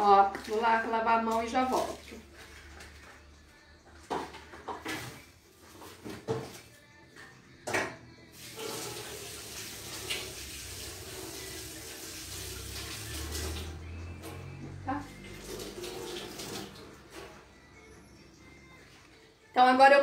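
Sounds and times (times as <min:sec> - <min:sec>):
tap water running into sink: 0:00.0 - 0:03.1, 0:08.4 - 0:17.4.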